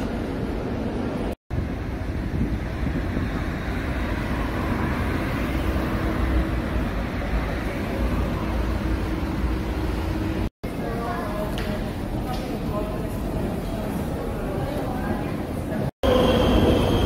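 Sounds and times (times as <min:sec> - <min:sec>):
cars driving past: 0:01.8 - 0:10.5.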